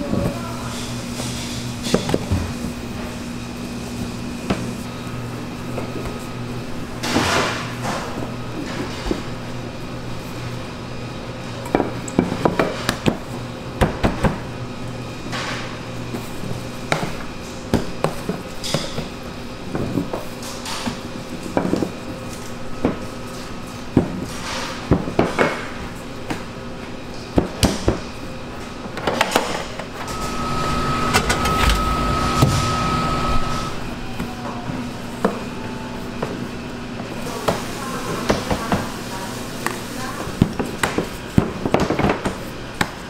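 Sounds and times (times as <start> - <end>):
faint hum: 30.0 - 36.1.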